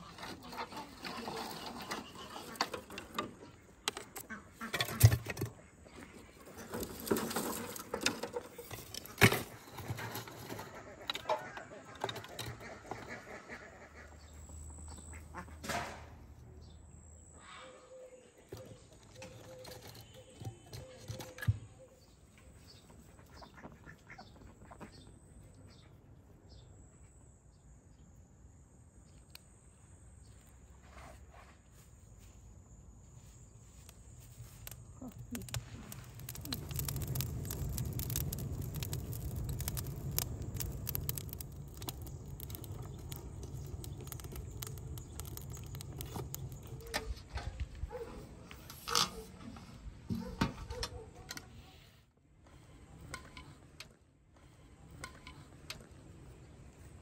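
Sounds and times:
wood fire crackling and roaring: 0.0s - 16.0s, 33.6s - 51.4s, 52.3s - 57.0s
ducks quacking: 10.6s - 14.3s.

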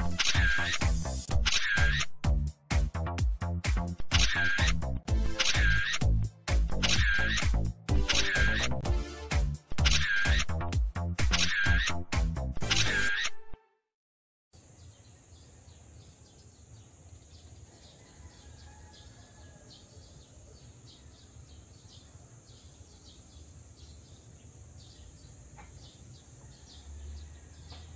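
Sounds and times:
birds chirping: 5.3s - 6.1s, 6.7s - 8.8s, 14.6s - 27.9s.

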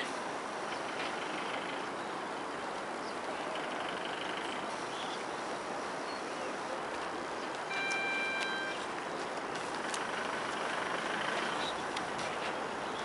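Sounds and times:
outdoor rushing noise: 0.0s - 13.0s
vehicle horn: 7.7s - 8.8s.

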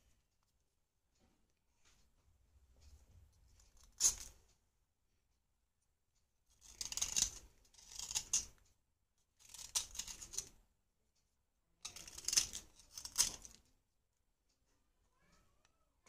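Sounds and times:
knife scraping clay: 3.6s - 4.5s, 6.5s - 8.6s, 9.3s - 10.6s, 11.8s - 13.6s.

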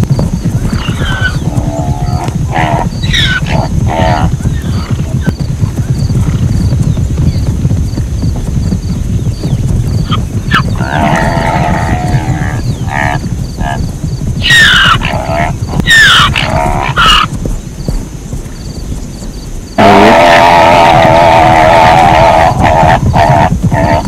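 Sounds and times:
steady low rumble: 0.0s - 24.0s
zebra braying calls: 14.4s - 17.3s, 19.8s - 24.0s.

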